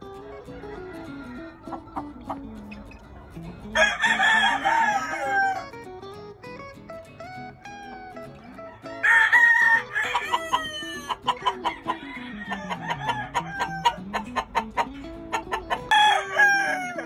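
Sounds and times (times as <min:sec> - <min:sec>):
background music: 0:00.0 - 0:17.0
rooster crowing: 0:00.5 - 0:02.4, 0:03.8 - 0:05.8, 0:08.6 - 0:14.2, 0:15.9 - 0:17.0.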